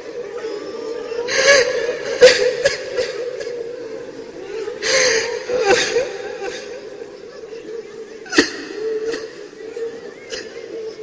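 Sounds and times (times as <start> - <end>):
sobbing catches of breath: 4.6 - 6.9.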